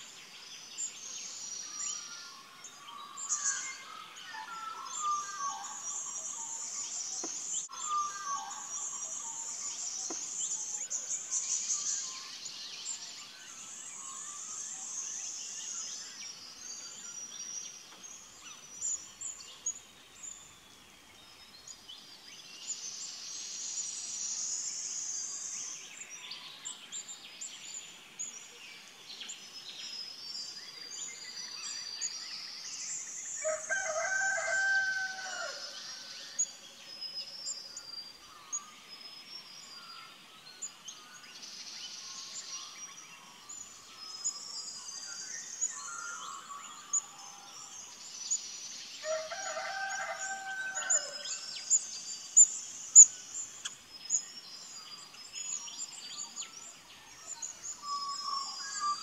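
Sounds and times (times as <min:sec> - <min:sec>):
small birds chirping: 0:00.0 - 0:59.0
rooster crowing: 0:33.4 - 0:35.8, 0:49.0 - 0:51.5.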